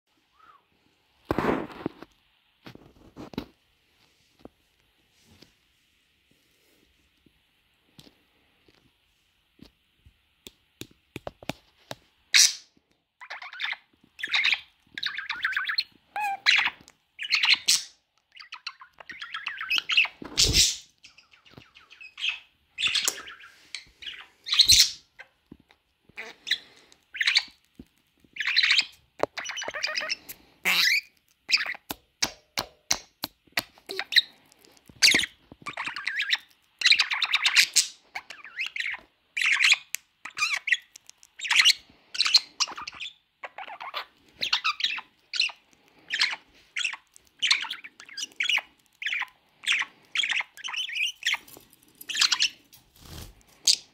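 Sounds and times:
budgerigar chirps and squawks: 12.4s - 25.0s, 28.4s - 31.9s.

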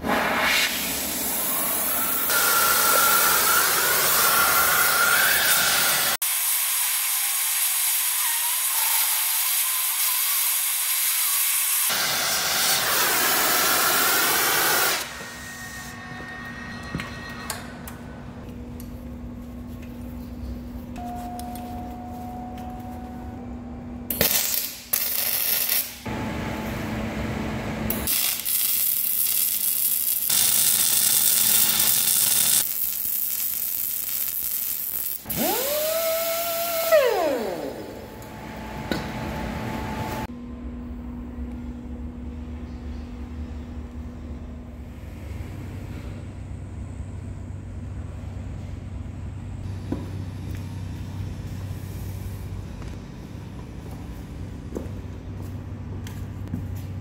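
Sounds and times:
welding hiss: 28.1s - 35.9s
low hum: 37.5s - 57.0s.

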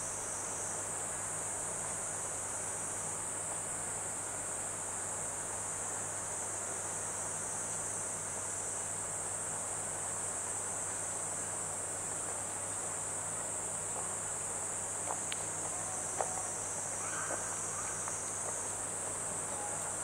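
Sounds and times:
high-pitched insect trilling: 15.6s - 18.8s.

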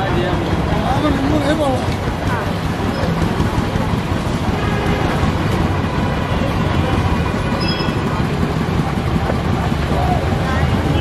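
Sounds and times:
roadside traffic rumble: 0.0s - 11.0s.

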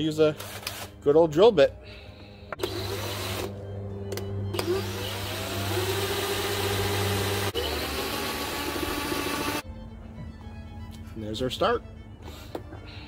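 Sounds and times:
cordless drill drilling plastic: 2.6s - 3.5s, 4.6s - 9.6s.

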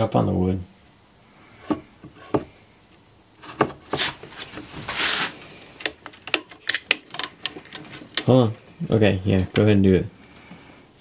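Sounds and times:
scraping rub: 1.6s - 2.5s, 3.4s - 5.6s.

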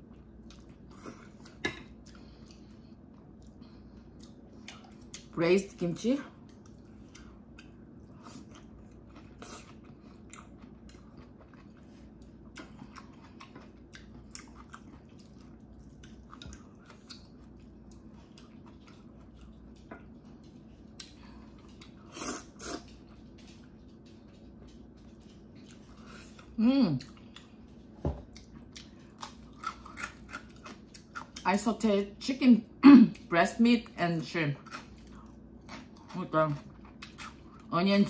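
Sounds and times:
chewing and slurping noodles: 6.4s - 31.4s.

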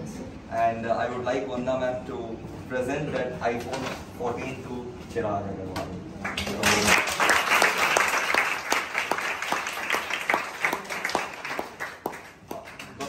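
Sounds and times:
people applauding: 6.2s - 13.0s.

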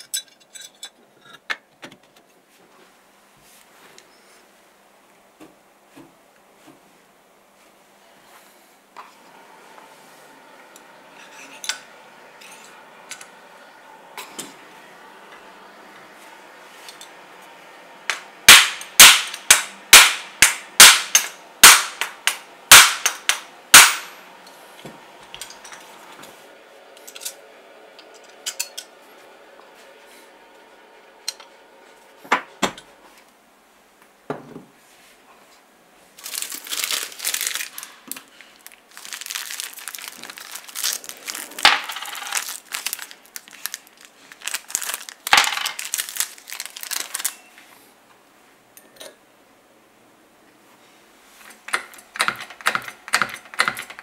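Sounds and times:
hammer knocking on metal rods: 51.8s - 54.0s.

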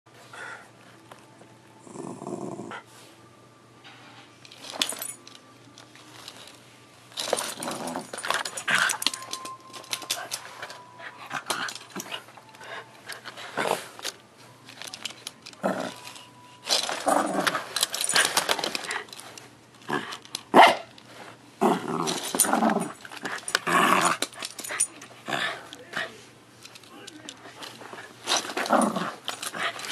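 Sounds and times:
small dog growling in play: 1.8s - 2.9s, 15.6s - 16.0s, 21.6s - 24.2s, 28.5s - 29.8s.

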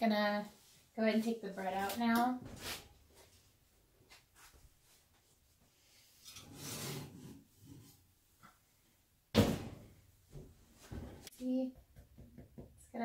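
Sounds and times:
scraping rub: 6.3s - 8.1s.

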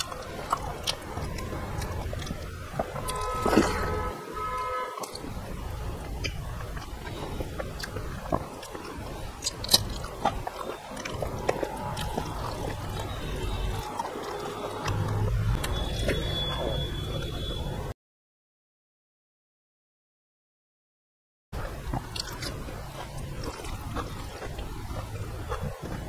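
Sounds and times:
person chewing: 0.0s - 4.0s, 5.0s - 16.8s, 21.6s - 26.0s.

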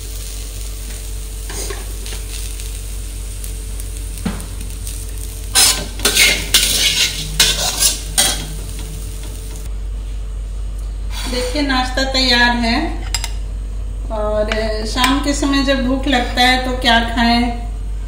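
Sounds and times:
steady low hum: 0.0s - 18.0s
steel spatula scraping metal pan: 5.6s - 8.5s.

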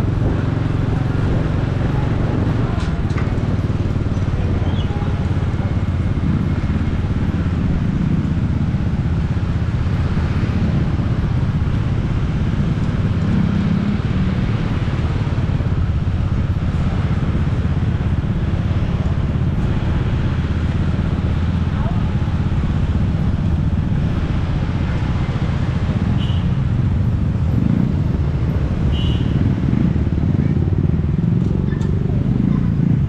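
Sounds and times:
motorbike engine rumble: 0.0s - 33.0s
road noise: 0.0s - 33.0s.

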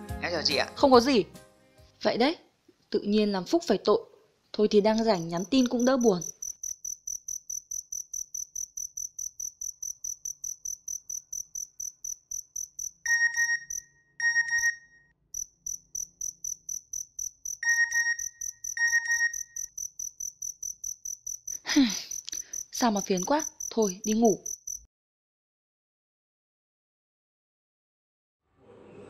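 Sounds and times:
crickets chirping: 5.0s - 13.9s, 15.4s - 24.9s
phone message alert chime: 13.1s - 14.9s, 17.6s - 19.5s.

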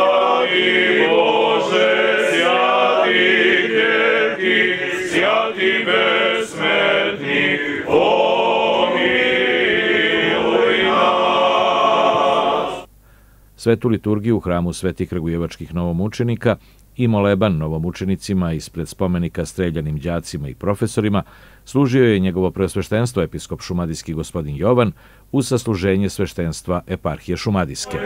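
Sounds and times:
voices singing chant: 0.0s - 12.9s.

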